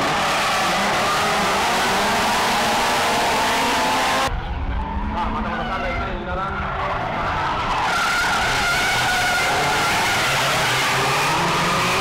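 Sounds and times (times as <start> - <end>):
car engines at high revs: 0.0 - 4.3, 7.2 - 12.0.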